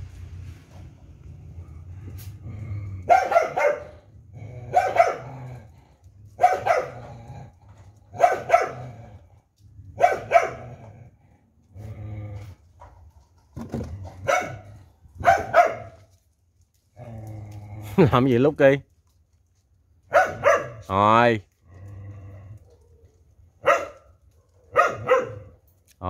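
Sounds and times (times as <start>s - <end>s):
dog barking in double barks: 3.1s - 3.9s, 4.7s - 5.3s, 6.4s - 7.0s, 8.2s - 8.8s, 10.0s - 10.6s, 14.3s - 14.6s, 15.2s - 16.0s, 20.1s - 20.8s, 23.6s - 24.0s, 24.7s - 25.5s.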